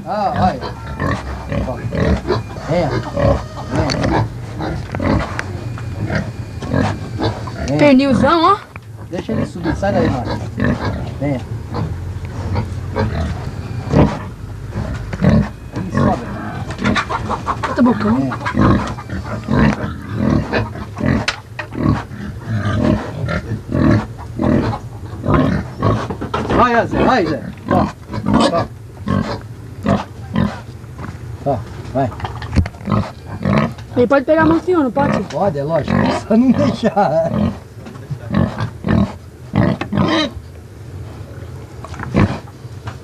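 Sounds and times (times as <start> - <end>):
pig grunting: 0.0 - 40.4, 42.0 - 42.5.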